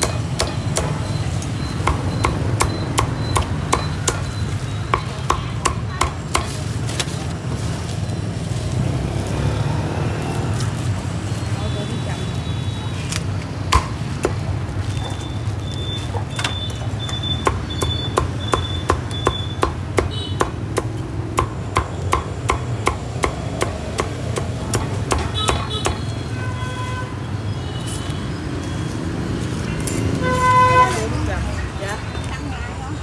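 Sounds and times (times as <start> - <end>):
low traffic rumble: 0.0 - 33.0
cleaver chopping on wooden block: 13.7 - 14.4, 17.4 - 26.0.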